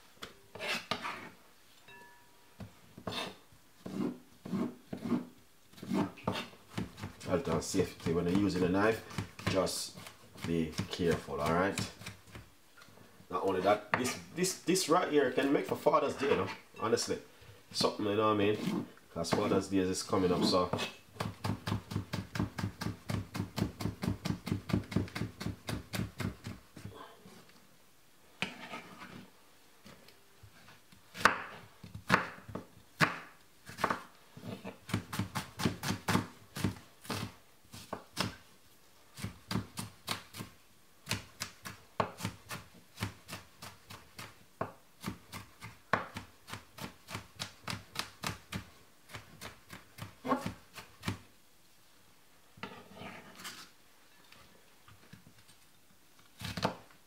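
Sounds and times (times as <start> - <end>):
knife chopping on wooden board: 20.7 - 26.6, 31.2 - 34.0, 34.6 - 38.4, 41.1 - 51.2.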